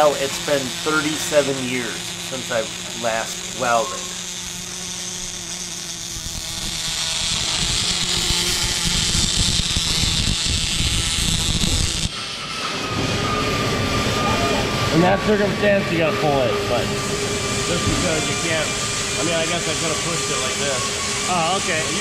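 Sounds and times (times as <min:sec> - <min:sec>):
welding arc crackling: 0:00.0 - 0:22.0.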